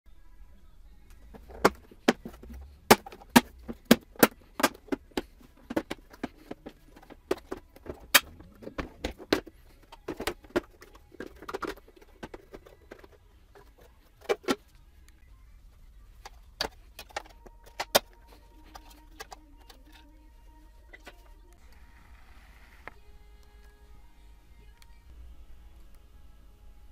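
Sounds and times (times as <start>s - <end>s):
plastic clips clicking: 16.2s - 20.1s.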